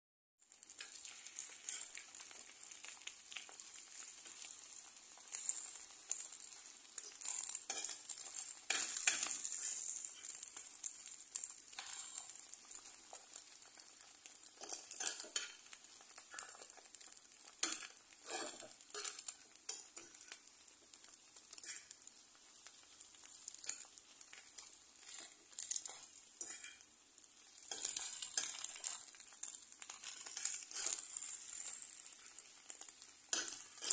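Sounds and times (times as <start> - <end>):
eggs sizzling in a frying pan: 0.4 - 33.9
utensil scraping a pan: 17.7 - 19.3, 30.0 - 31.8.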